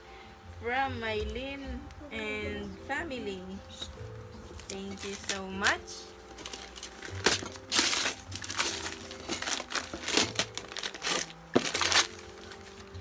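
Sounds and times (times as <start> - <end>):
wrapping paper tearing and rustling: 4.6 - 13.0.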